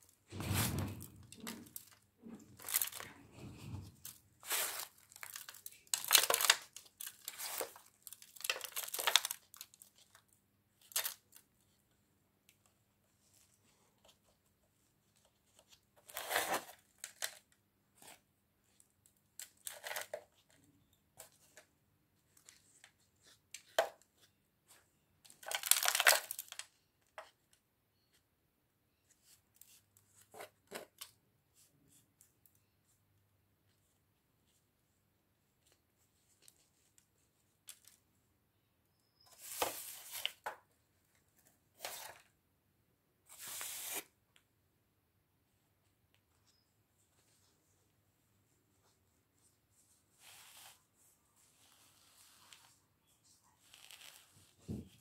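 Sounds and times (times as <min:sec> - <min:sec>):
potting soil rustling: 0:00.3 - 0:05.6
plastic plant pot crinkling: 0:00.3 - 0:10.2, 0:25.3 - 0:26.7.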